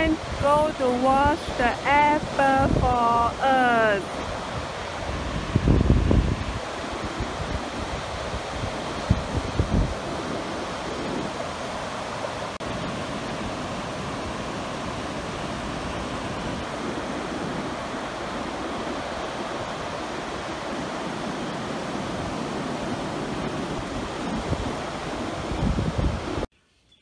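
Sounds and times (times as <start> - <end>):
ocean surf breaking on sand: 0.0 - 26.5.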